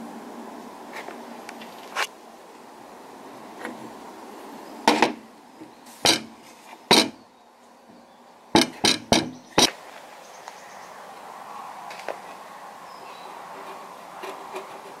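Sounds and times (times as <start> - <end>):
wood and brass knocking on workbench: 6.9 - 7.2, 8.6 - 9.4.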